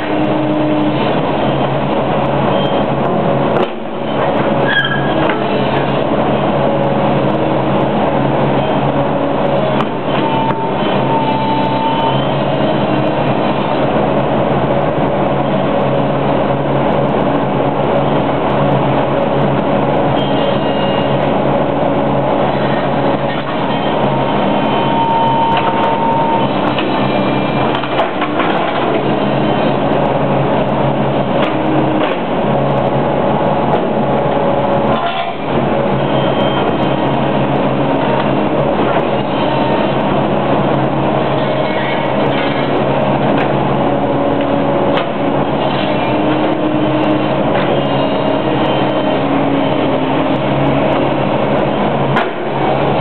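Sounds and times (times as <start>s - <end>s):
excavator engine under load: 0.0s - 53.0s
metal squealing: 4.1s - 5.3s.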